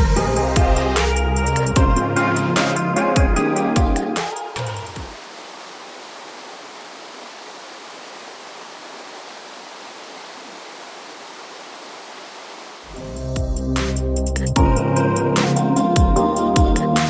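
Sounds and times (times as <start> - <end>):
electronic music with bass beat: 0.0 - 5.1, 12.9 - 17.0
creek rushing over boulders: 4.9 - 13.0.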